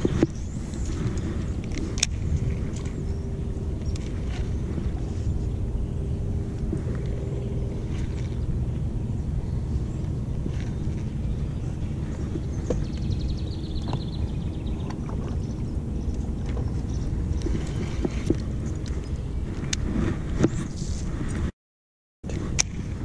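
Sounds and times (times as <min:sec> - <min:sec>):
steady low rumble: 0:00.0 - 0:21.5.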